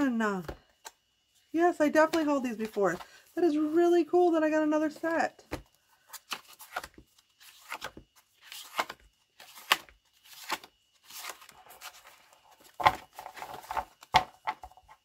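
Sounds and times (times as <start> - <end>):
paper cards rustling and slapping: 2.0 - 3.8, 4.9 - 15.0.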